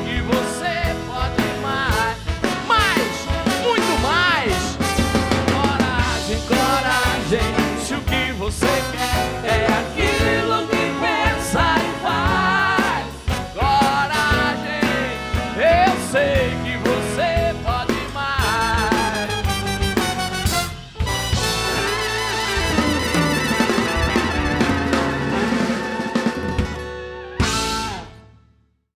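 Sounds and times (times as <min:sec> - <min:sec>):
drum kit: 0:00.0 - 0:28.4
keyboard: 0:00.0 - 0:28.4
bass guitar: 0:00.0 - 0:28.5
horn section: 0:01.8 - 0:16.4, 0:18.4 - 0:28.3.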